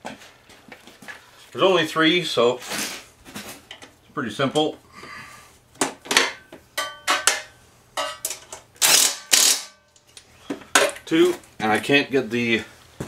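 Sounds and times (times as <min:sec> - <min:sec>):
cordless impact driver bursts: 0:08.8 - 0:09.7.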